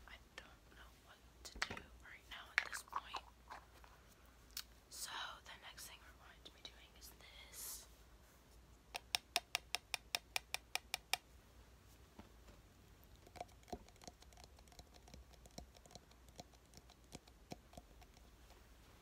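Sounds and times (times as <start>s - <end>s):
close clicking and tapping: 8.9s - 11.3s, 13.2s - 18.7s.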